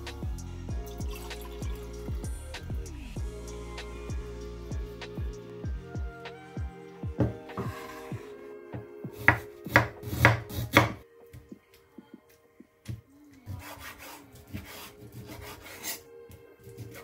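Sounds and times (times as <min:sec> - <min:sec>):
knife chopping on cutting board: 0:09.2 - 0:11.0.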